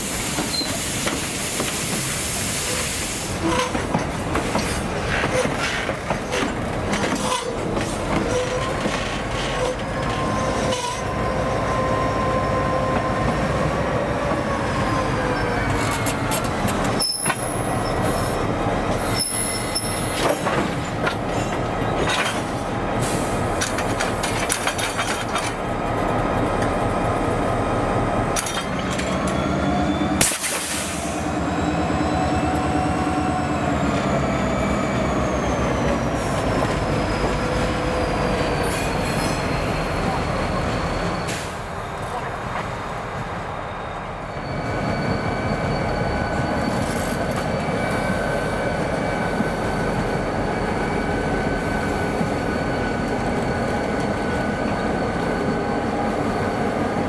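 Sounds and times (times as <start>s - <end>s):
diesel locomotive engines: 0.0s - 57.0s
wheel flanges squealing: 15.2s - 22.6s, 43.6s - 57.0s
wheels clicking over rail joints: 23.6s - 25.7s.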